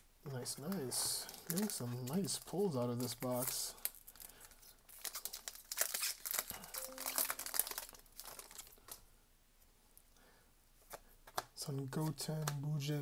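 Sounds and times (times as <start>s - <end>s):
foil pack crinkling: 1.1s - 9.0s.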